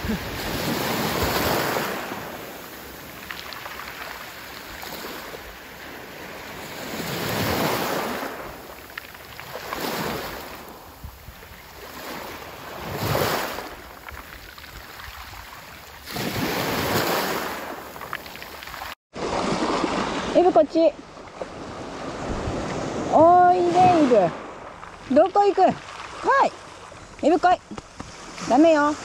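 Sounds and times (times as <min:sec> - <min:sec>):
waves washing up pebble beach: 0:00.0 - 0:20.5.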